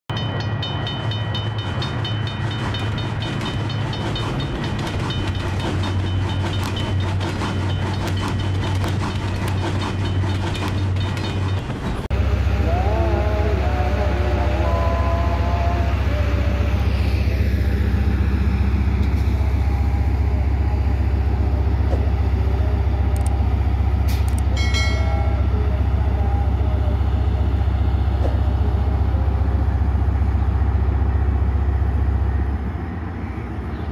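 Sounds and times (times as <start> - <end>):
diesel locomotive engine rumble: 0.1 - 33.9
locomotive horn blast: 12.1 - 18.0, 19.1 - 31.1.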